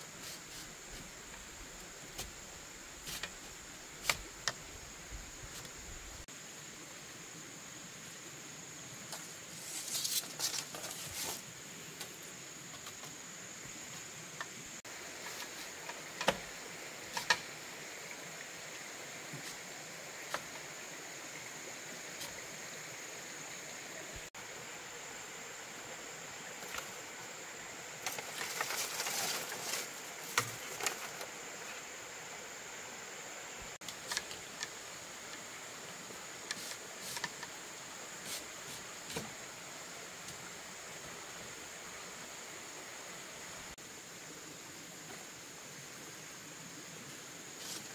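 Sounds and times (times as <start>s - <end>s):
high insect drone: 0.0s - 47.9s
bamboo slats rustling and knocking: 2.1s - 2.4s, 3.0s - 4.6s, 9.1s - 13.2s, 14.4s - 17.6s, 28.0s - 31.8s, 33.8s - 35.4s, 36.4s - 37.6s, 38.2s - 39.4s.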